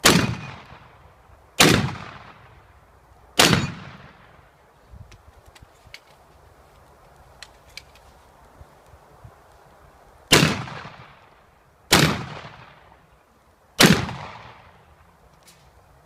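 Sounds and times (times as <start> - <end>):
shotgun shots: 0.0 - 1.0, 1.6 - 2.6, 3.4 - 4.4, 10.3 - 11.2, 11.9 - 12.9, 13.8 - 14.8.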